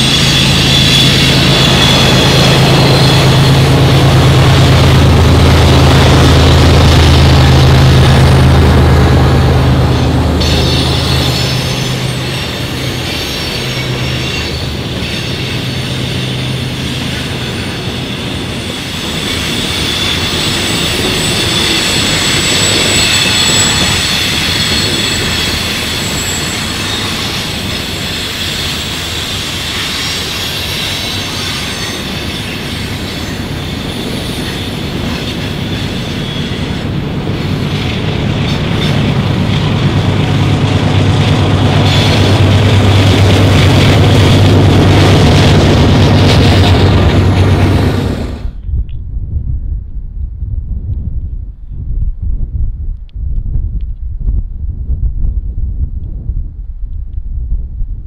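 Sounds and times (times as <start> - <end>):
train wheels squealing on rail: 0.0 - 8.2, 9.3 - 48.6
diesel locomotive drone: 0.0 - 58.0.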